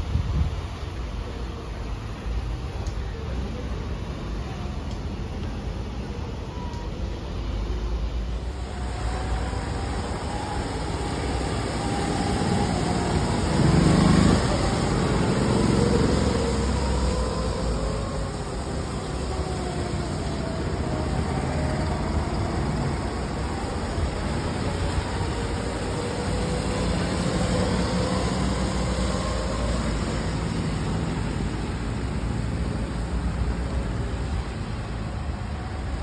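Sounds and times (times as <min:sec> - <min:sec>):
go-kart engines passing: 0:08.4 - 0:36.0.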